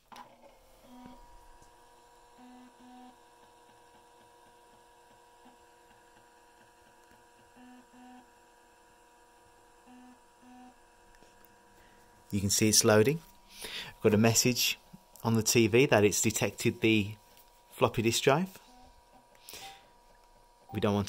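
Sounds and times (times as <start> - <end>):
faint steady hum: 0.1 - 21.0
floppy drive head buzzes: 0.1 - 21.0.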